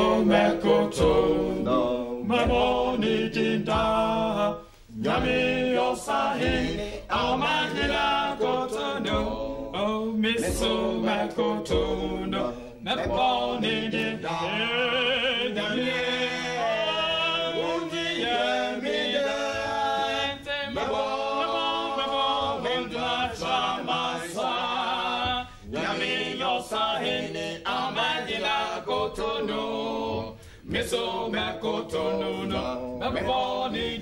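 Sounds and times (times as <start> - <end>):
male vocal group singing: 0.0 - 34.0.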